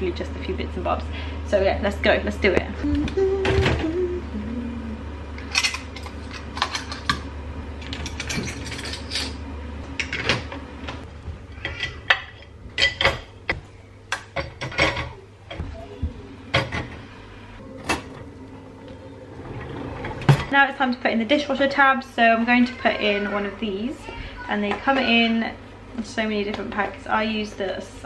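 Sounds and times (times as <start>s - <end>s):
dishes clinking in dishwasher racks: 7.8s - 9.4s, 10.0s - 10.6s, 11.6s - 13.4s, 14.3s - 15.7s.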